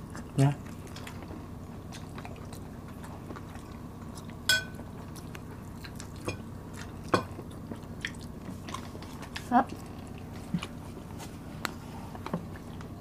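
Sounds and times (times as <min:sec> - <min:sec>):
steady low hum: 0:00.0 - 0:13.0
metal spoon clinking on dishes: 0:04.5 - 0:04.8.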